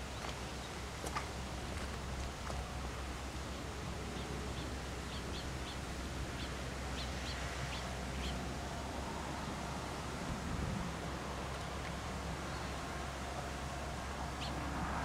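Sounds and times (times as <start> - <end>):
outdoor rumble and hiss: 0.0 - 15.0
bird chirping: 4.1 - 5.8.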